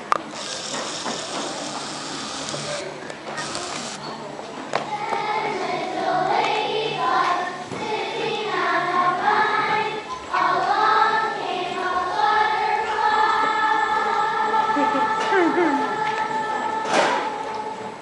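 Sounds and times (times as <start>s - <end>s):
children singing together: 4.9s - 18.0s.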